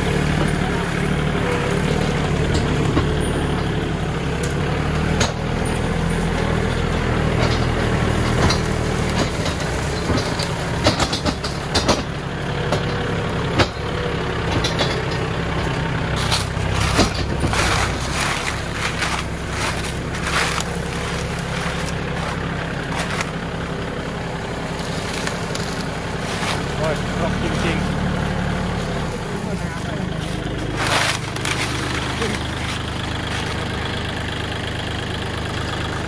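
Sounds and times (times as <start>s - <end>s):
tractor diesel engine running: 0.0s - 36.0s
sharp cracks and knocks: 4.4s - 23.4s, 24.3s - 26.9s, 30.6s - 33.6s.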